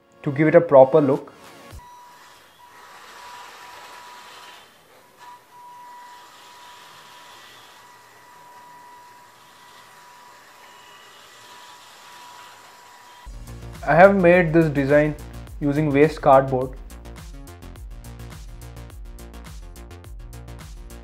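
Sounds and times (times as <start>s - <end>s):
electric motor whine: 1.7s - 13.4s
wheels and gears hissing: 1.8s - 13.3s.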